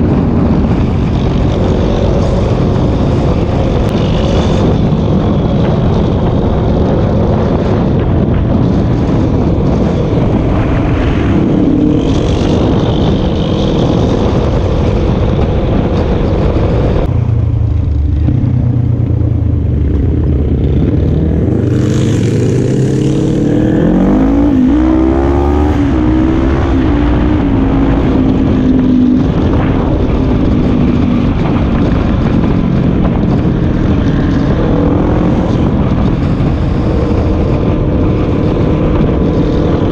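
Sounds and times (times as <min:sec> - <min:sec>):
motor vehicle engine running: 0:00.0 - 0:39.9
wind rushing over microphone: 0:00.0 - 0:39.9.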